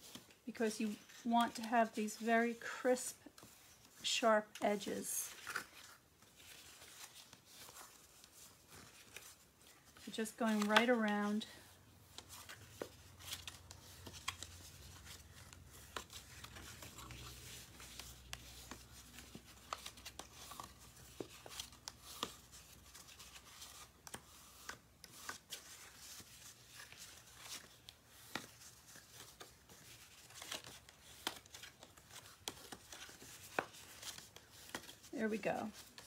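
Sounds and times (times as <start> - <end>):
paper handling taps: 10.5 - 11.1.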